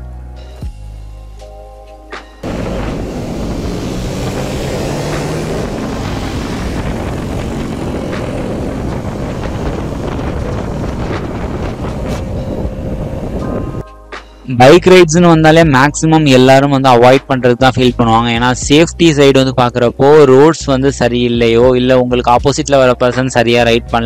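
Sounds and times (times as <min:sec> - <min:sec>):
motorcycle engine running: 0:02.4 - 0:13.8
wind noise on microphone: 0:02.4 - 0:13.8.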